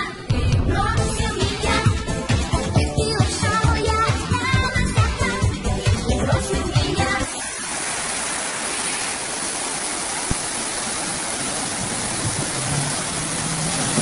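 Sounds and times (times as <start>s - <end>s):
river rushing in flood: 7.4s - 14.0s.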